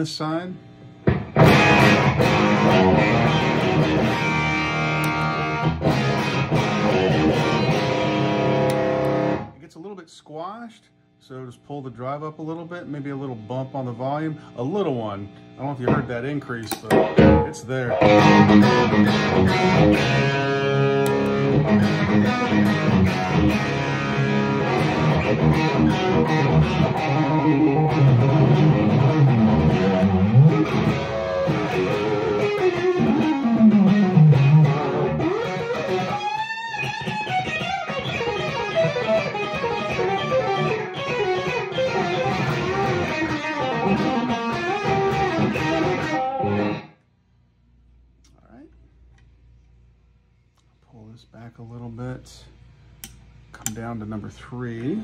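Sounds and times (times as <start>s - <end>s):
overdriven electric guitar lead: 1.0s - 9.6s, 15.8s - 47.0s.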